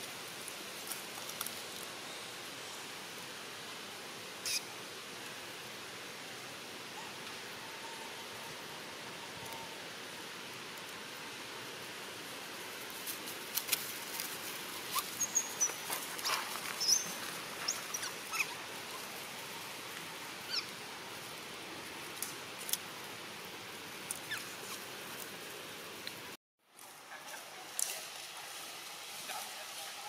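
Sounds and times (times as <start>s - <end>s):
dry leaves crackling: 0.0s - 2.3s, 12.7s - 25.6s, 26.7s - 30.0s
outdoor hiss: 0.0s - 30.0s
high animal squeaks and chirps: 4.4s - 4.7s, 14.9s - 18.6s, 20.4s - 20.7s, 24.2s - 24.8s.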